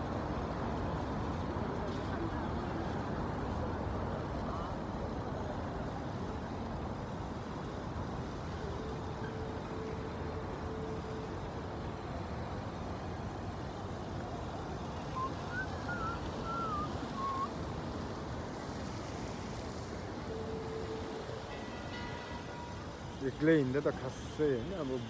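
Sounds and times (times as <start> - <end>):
traffic rumble: 0.0 - 25.0
wavering high chirps: 15.0 - 17.5.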